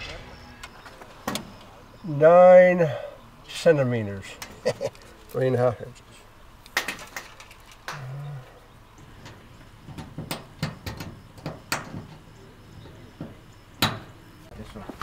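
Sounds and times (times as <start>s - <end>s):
low hum: 0.0s - 2.4s
tools clicking against metal siding: 4.4s - 5.4s, 9.0s - 14.2s.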